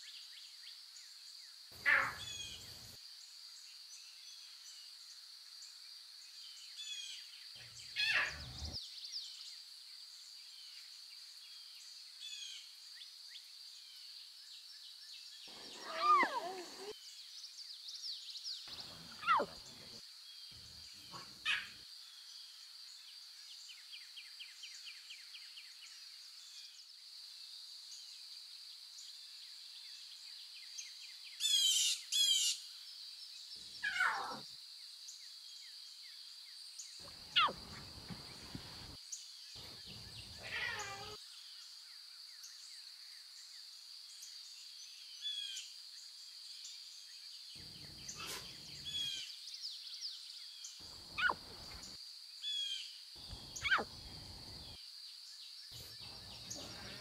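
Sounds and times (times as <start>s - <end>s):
bird calls and chirps: 1.8s - 2.9s, 6.5s - 9.4s, 14.9s - 22.3s, 36.8s - 41.6s, 46.6s - 57.0s.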